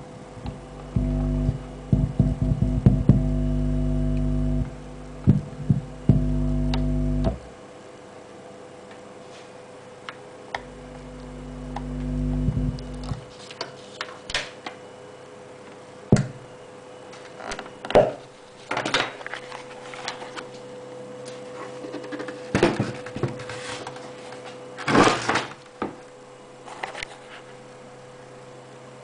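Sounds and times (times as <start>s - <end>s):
faint electrical hum: 0.0s - 29.0s
hand knocking on speaker cabinet: 0.5s - 3.3s, 5.2s - 6.4s.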